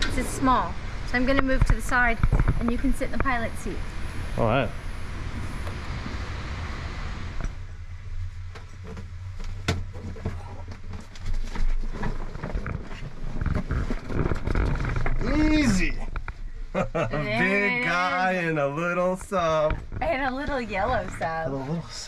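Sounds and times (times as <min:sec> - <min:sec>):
knocks and thumps against hull: 0:08.5 - 0:15.2.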